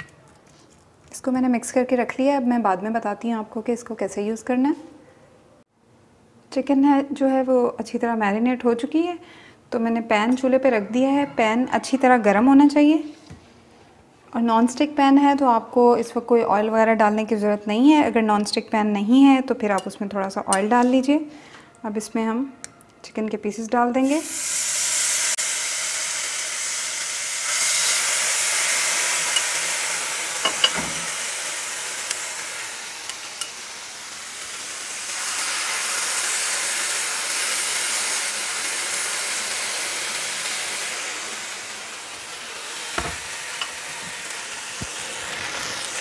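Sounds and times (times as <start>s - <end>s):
chicken sizzling in a pan: 24.0s - 46.0s.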